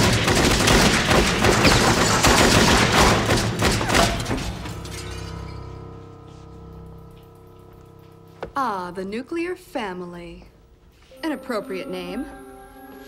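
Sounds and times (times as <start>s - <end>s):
rapid gunfire: 0.0s - 4.3s
debris shattering and crashing: 0.0s - 5.6s
held music chord: 11.1s - 13.0s.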